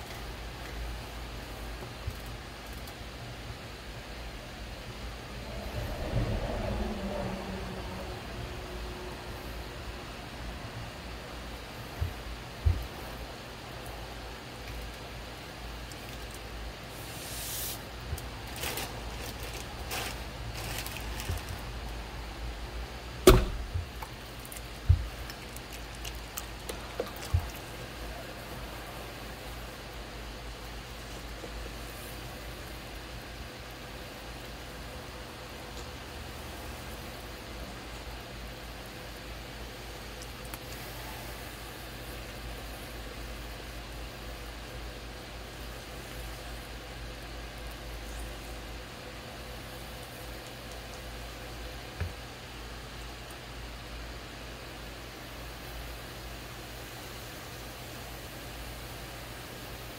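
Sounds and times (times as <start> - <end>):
dull thumps: 12.0 - 13.0
wet clay squishes: 23.8 - 27.9.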